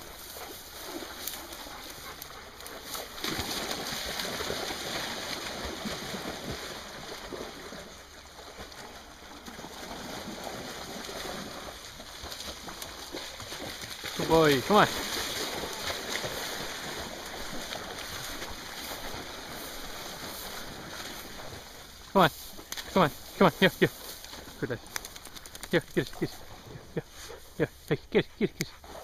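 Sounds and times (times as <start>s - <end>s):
river water splashing over stones: 2.7s - 25.8s.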